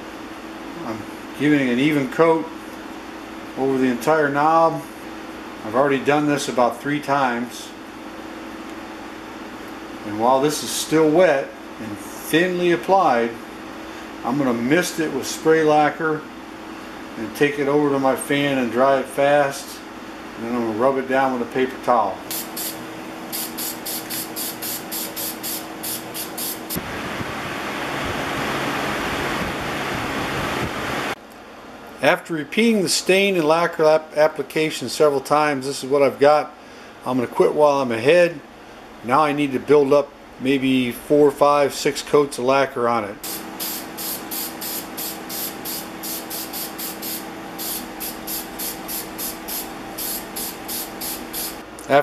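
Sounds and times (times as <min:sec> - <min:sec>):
box fan rushing air: 0:00.0 - 0:32.0, 0:43.2 - 0:51.8
aerosol spray bursts: 0:22.3 - 0:26.8, 0:43.2 - 0:51.6.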